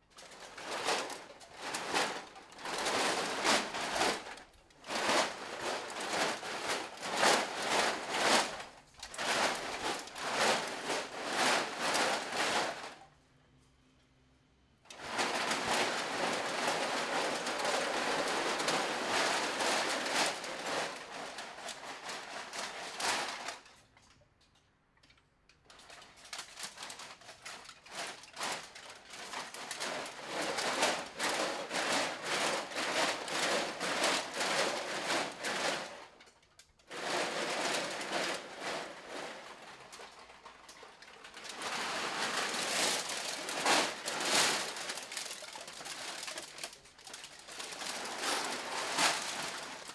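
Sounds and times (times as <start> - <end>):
metal cans rattling: 0.1 - 13.0, 14.9 - 24.2, 25.0 - 49.9.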